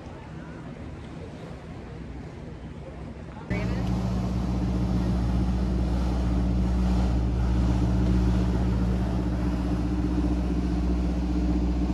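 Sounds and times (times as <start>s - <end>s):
motorboat engine droning: 3.5s - 11.9s.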